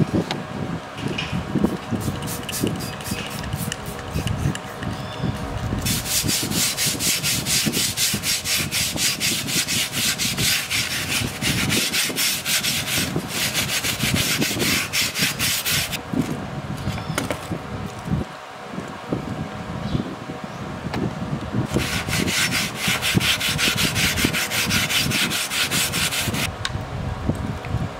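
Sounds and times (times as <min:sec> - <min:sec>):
sponge scrubbing metal blade: 0:05.8 - 0:16.0, 0:21.7 - 0:26.5.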